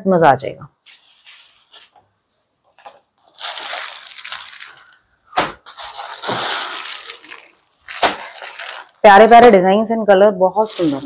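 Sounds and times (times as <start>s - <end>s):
fabric crinkly rustling: 0.8s - 5.0s, 5.6s - 9.6s, 10.6s - 11.0s.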